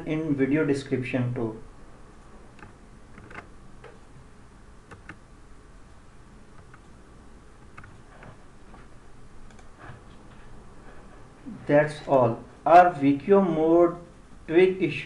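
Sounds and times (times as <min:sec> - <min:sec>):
computer keyboard and mouse clicks: 0:02.6 - 0:04.0, 0:04.9 - 0:05.2, 0:06.6 - 0:06.9, 0:07.6 - 0:08.3.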